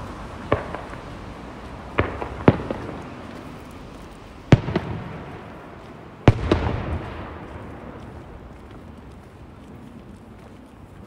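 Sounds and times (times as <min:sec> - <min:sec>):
rumbling echo: 0:04.5 - 0:09.3.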